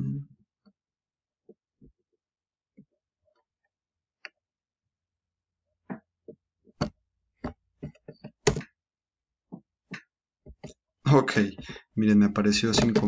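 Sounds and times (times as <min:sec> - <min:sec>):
keyboard and mouse clicks: 0:07.8 - 0:08.8.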